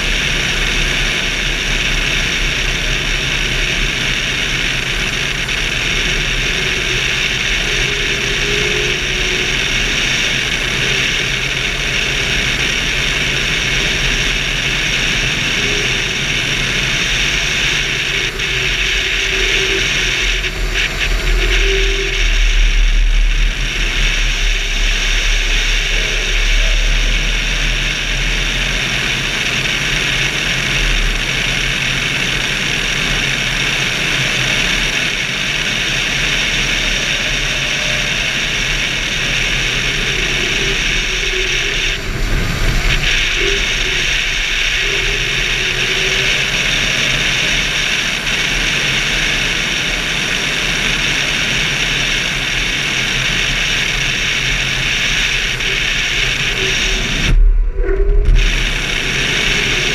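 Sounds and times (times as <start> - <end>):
steady low hum: 0.0 - 59.9
rush of airflow: 51.0 - 59.9.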